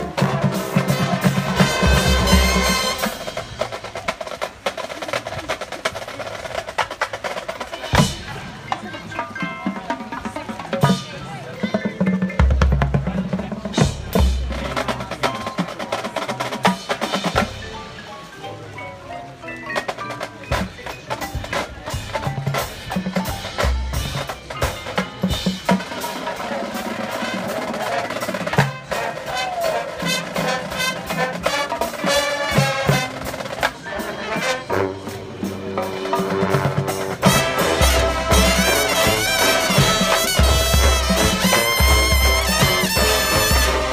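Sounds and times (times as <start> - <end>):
horns playing: 0.0 - 4.6, 23.4 - 43.9
mallet percussion and drums: 0.0 - 43.9.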